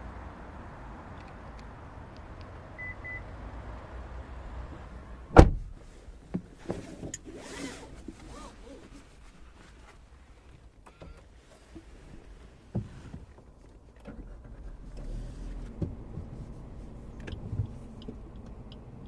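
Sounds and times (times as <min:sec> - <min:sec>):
outside noise: 0:00.0 - 0:19.0
short beeps: 0:02.8 - 0:03.2
car door thud: 0:05.3 - 0:05.8.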